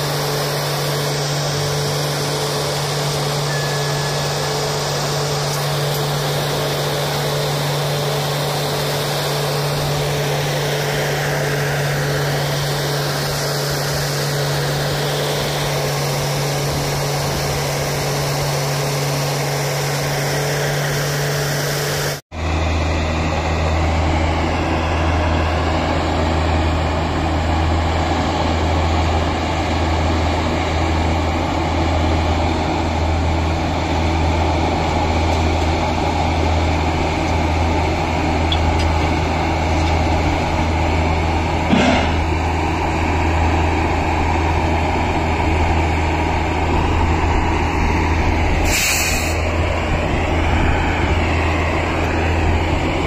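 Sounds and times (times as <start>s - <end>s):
heavy machinery engine humming: 0.0s - 53.0s
lower-pitched engine running: 0.0s - 53.0s.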